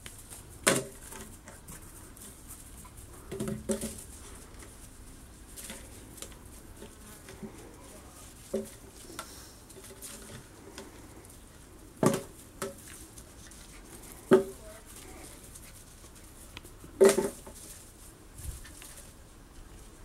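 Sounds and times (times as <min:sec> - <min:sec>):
plastic bottle crackling and knocking: 0:03.3 - 0:04.0, 0:12.0 - 0:12.9, 0:14.2 - 0:14.6, 0:17.0 - 0:17.6.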